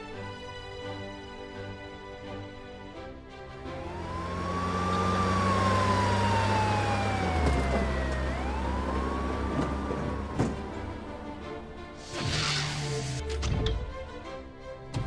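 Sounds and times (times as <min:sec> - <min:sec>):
vehicle engine hum: 0:03.5 - 0:13.2
police siren wailing: 0:03.6 - 0:12.2.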